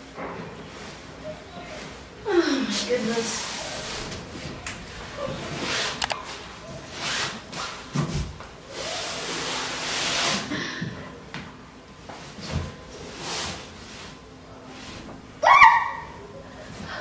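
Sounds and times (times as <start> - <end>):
rubbing and rustling on fabric: 2.7 - 10.5.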